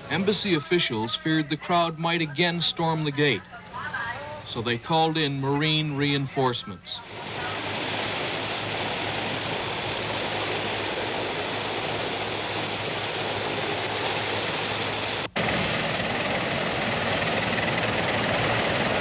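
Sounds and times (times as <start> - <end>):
helicopter engine and rotor din: 7.0 - 19.0.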